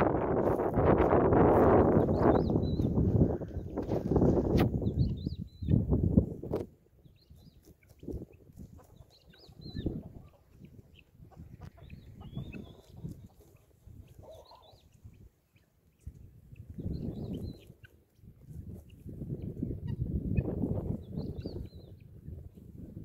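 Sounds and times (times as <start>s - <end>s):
faint high bird chirps: 1.8s - 3.0s, 4.8s - 5.8s, 7.0s - 11.1s, 11.7s - 13.6s, 14.2s - 17.8s.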